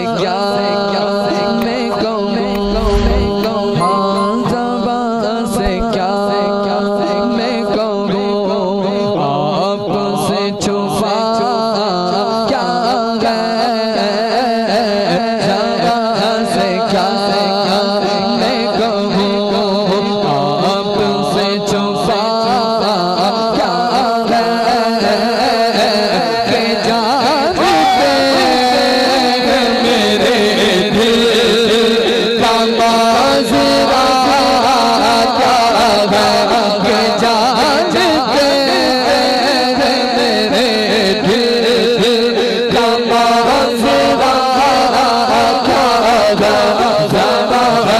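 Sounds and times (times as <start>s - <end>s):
quick even pulse: 2.5s - 4.8s
steady held tone: 2.5s - 5.9s
man singing into microphone: 3.4s - 47.9s.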